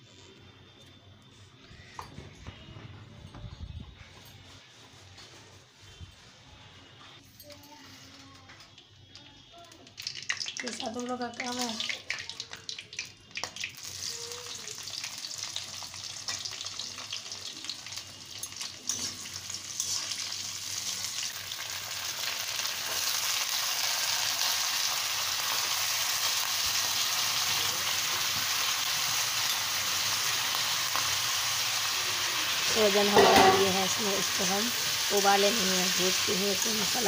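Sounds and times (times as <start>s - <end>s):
oil sizzling in a pan: 9.5s - 37.0s.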